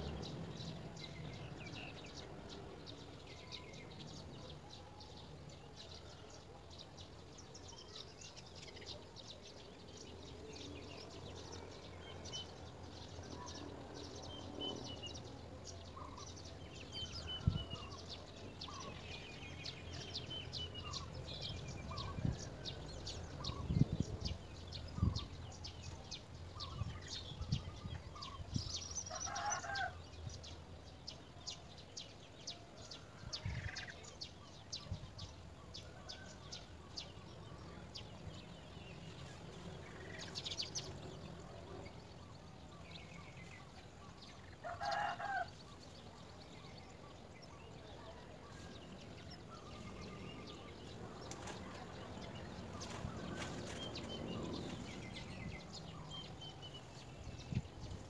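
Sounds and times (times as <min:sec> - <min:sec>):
small birds chirping: 0:00.0 - 0:58.0
rooster crowing: 0:29.1 - 0:30.0, 0:44.6 - 0:45.6.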